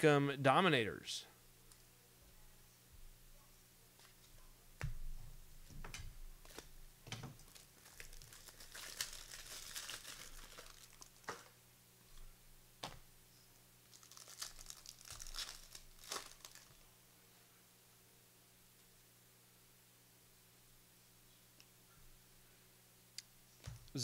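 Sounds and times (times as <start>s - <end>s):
foil wrapper tearing and crinkling: 7.4s - 11.5s, 13.9s - 16.8s.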